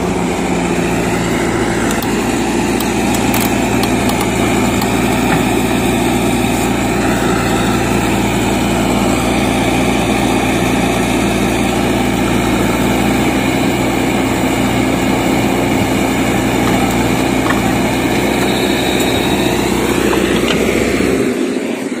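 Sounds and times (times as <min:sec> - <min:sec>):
diesel engine running under load: 0:00.0 - 0:22.0
soil being dumped: 0:12.0 - 0:21.4.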